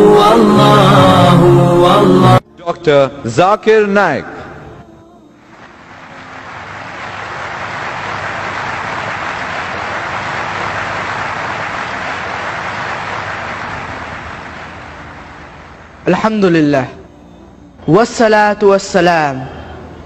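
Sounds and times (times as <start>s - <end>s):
large audience applauding: 5.5s - 16.0s.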